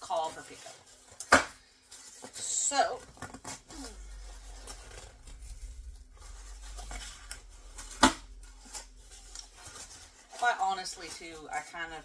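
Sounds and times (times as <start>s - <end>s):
cardboard rustling and scraping: 0.0s - 12.0s.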